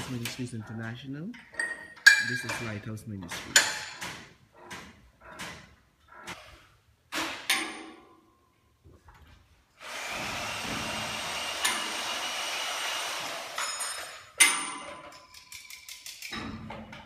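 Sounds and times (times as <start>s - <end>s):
metal pipe clanks: 1.3s - 6.4s, 13.6s - 17.0s
power tool running: 9.8s - 13.8s.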